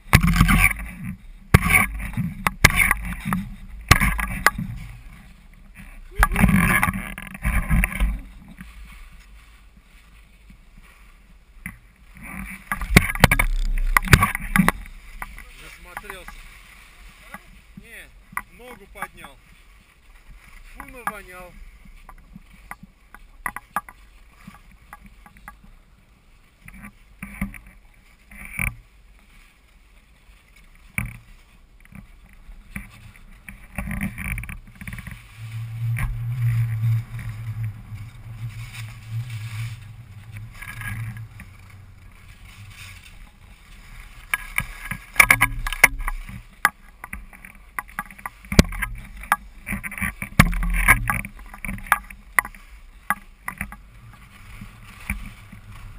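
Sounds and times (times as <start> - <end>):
sharp clicks and knocks: 0.0 - 8.7, 11.6 - 16.4, 32.7 - 55.9
low steady rumble: 0.0 - 23.4, 31.4 - 55.9
skis scraping over snow: 0.0 - 55.9.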